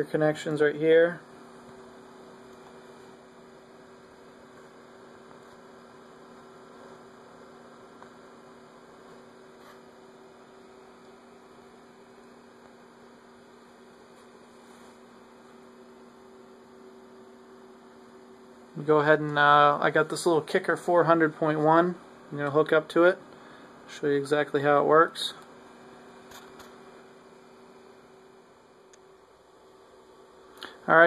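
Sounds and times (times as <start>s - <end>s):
faint electrical hum: 0.0s - 31.0s.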